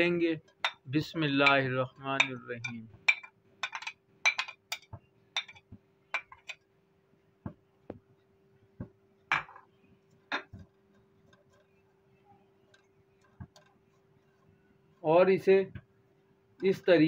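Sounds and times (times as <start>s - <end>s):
faint steady hum: 0.0s - 17.0s
spatula knocking on pan: 1.4s - 2.4s.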